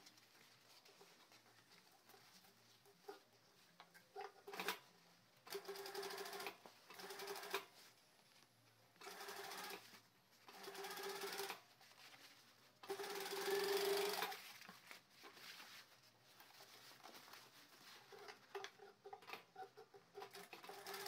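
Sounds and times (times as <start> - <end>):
sewing machine stitching: 9.0 - 9.9, 10.5 - 11.6, 12.8 - 14.4, 18.1 - 21.0.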